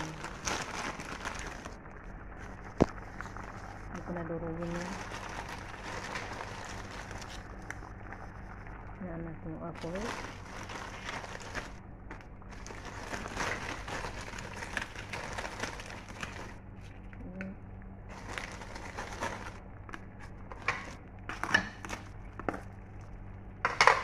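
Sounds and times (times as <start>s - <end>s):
crispy pork rinds crunching: 0.0s - 1.9s, 4.5s - 7.8s, 9.8s - 16.7s, 18.1s - 23.1s
steady low hum: 0.0s - 24.0s.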